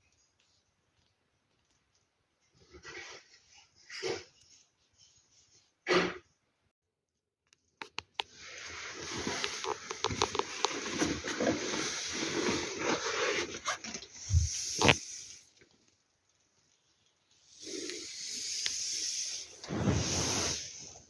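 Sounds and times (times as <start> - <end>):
tent fabric rustling: 8.4 - 15.4, 19.5 - 21.0.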